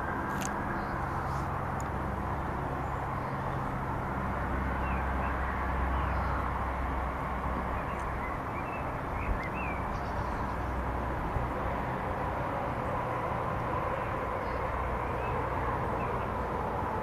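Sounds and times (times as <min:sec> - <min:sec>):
outdoor rumble and hiss: 0:00.0 - 0:17.0
bird chirps: 0:07.8 - 0:10.7.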